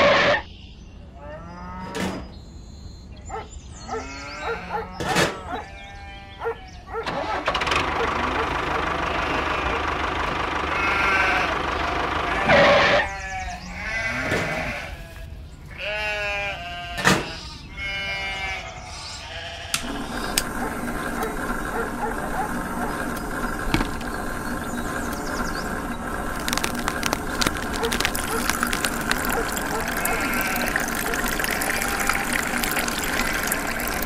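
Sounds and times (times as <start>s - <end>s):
animal bleating: 3.9s - 6.8s, 9.1s - 9.8s, 10.7s - 34.0s
steady mechanical hum: 19.4s - 34.0s.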